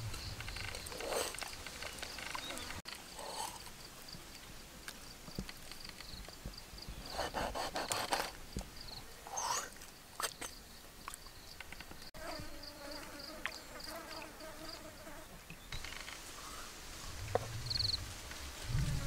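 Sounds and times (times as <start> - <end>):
pulsing insect chirp: 0.0 - 4.0.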